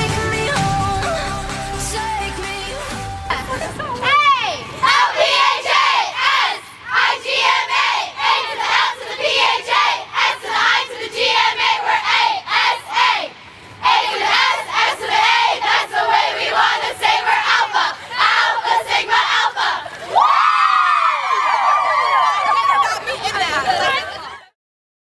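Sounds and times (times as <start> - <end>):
women chanting in unison: 4.2 - 19.9.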